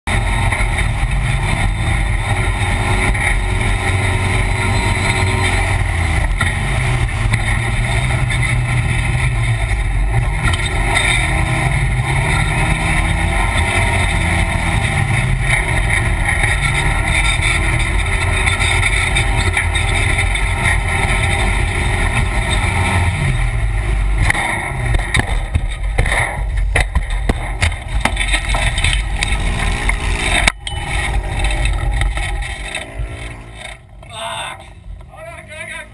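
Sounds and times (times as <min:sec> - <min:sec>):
vehicle engine running hard: 0:00.0 - 0:35.9
knocks and rattles of crash: 0:24.1 - 0:34.9.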